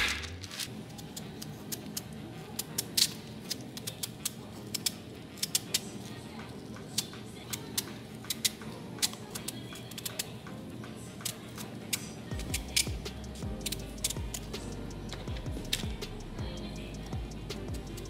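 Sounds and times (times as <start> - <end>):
background music: 0.0 - 18.0.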